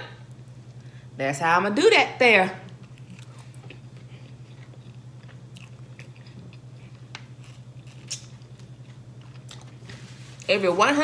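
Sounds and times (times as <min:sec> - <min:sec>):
steady low hum: 0:00.0 - 0:11.0
person chewing food: 0:02.7 - 0:10.5.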